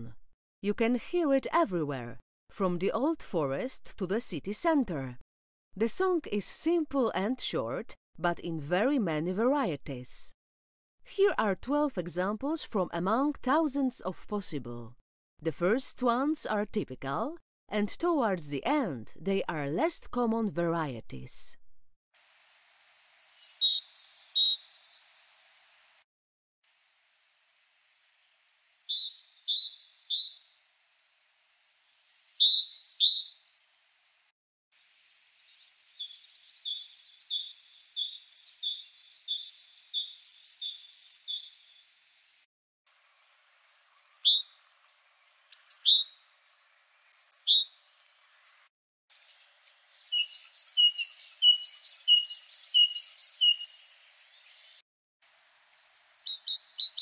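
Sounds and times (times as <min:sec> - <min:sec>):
great tits singing: 0:23.2 - 0:25.2, 0:27.7 - 0:30.4, 0:32.1 - 0:33.3, 0:35.5 - 0:41.8, 0:43.9 - 0:44.6, 0:49.4 - 0:54.5, 0:56.3 - 0:57.0.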